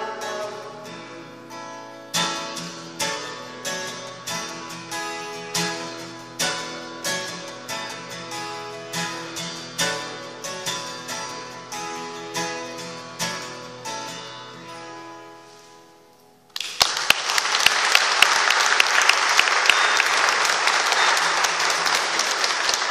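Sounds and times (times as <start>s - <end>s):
acoustic guitar strumming: 0.0s - 16.5s, 19.4s - 22.9s
audience applause: 16.6s - 22.9s.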